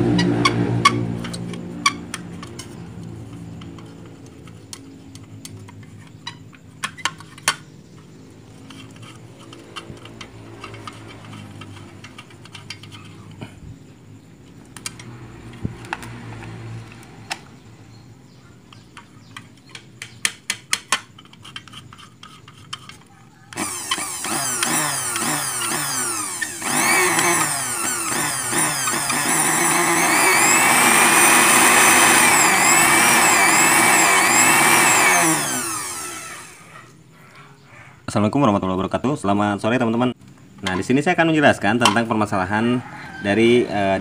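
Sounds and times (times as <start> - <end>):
sewing machine motor humming: 23.6 - 36.8.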